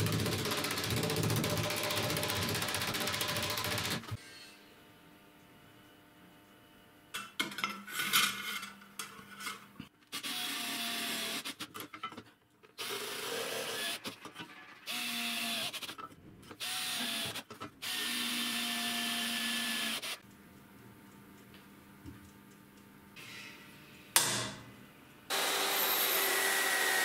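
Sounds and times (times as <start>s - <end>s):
cordless drill drilling metal: 25.3s - 27.0s.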